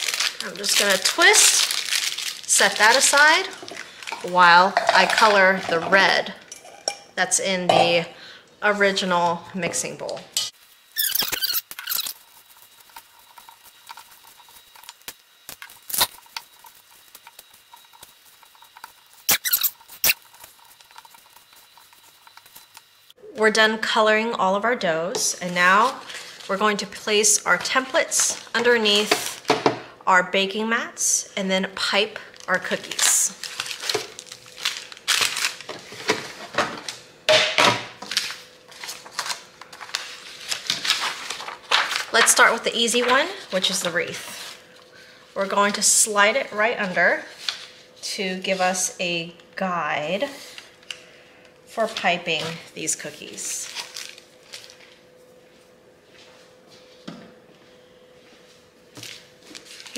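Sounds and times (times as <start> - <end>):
plastic bags rustling: 0.0 - 5.8, 32.3 - 36.6, 38.1 - 44.6, 53.3 - 55.1
spatula squeaks in bowl: 11.0 - 12.3, 19.1 - 22.6
spatula folding sticky dough: 11.8 - 15.1, 16.1 - 23.0.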